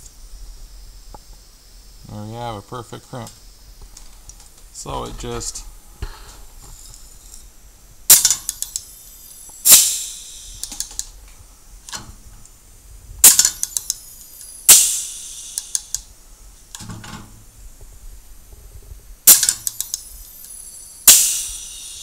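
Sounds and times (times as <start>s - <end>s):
air hissing from valve: 4.8s - 7.5s, 8.1s - 11.2s, 13.2s - 16.1s, 19.2s - 22.0s.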